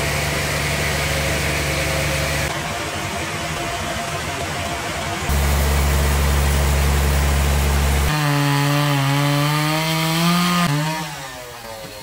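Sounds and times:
low machine hum: 5.3 - 8.1
chainsaw cutting log: 7.1 - 12.0.

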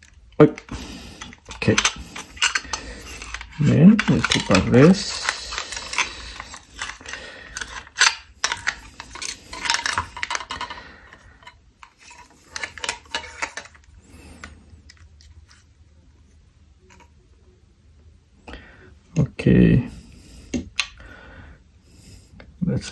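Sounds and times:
plastic parts clicking: 0.0 - 15.3.

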